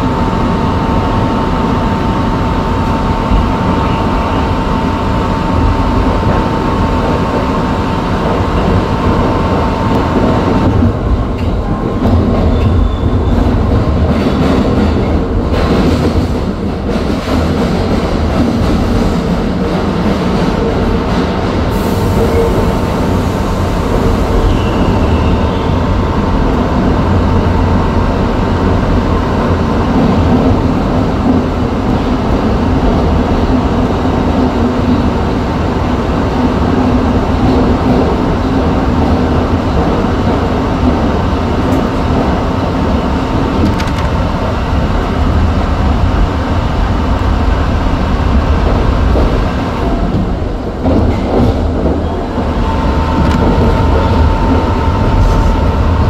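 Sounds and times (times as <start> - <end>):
train wheels rumbling on rails: 0.0 - 56.0
steady whining tone: 51.8 - 56.0.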